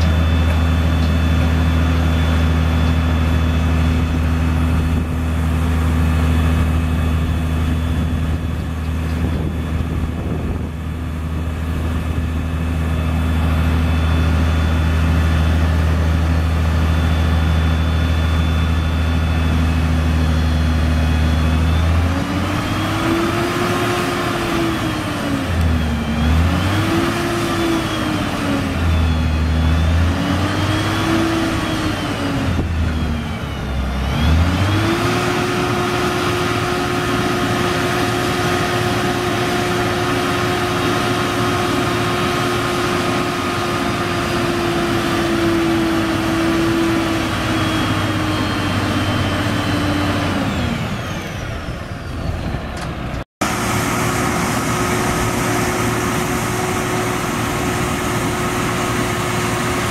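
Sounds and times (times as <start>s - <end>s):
diesel engine under load: 0.0s - 59.9s.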